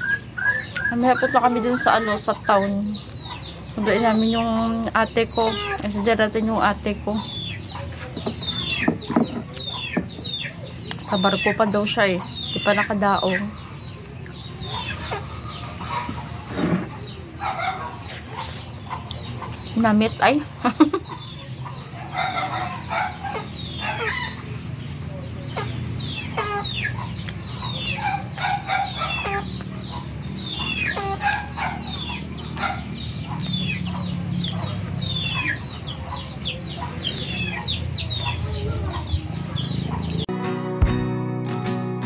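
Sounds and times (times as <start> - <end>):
chickens clucking: 0.0 - 40.3
strummed acoustic guitar music: 40.2 - 42.0.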